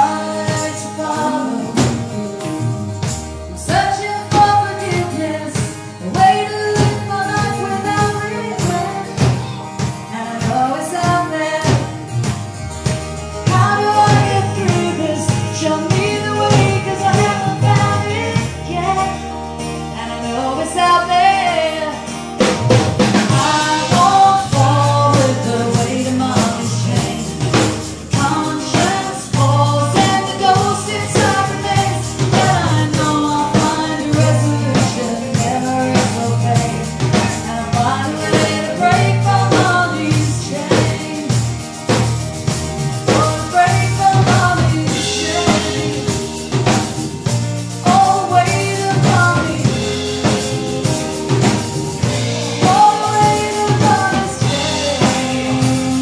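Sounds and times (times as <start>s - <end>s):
man singing: 0.0s - 2.1s, 23.3s - 41.4s, 43.1s - 46.6s, 47.8s - 56.0s
woman singing: 0.0s - 2.5s, 3.5s - 12.1s, 13.4s - 56.0s
acoustic guitar: 0.0s - 56.0s
drum kit beats: 0.0s - 56.0s
electric bass guitar: 0.0s - 56.0s.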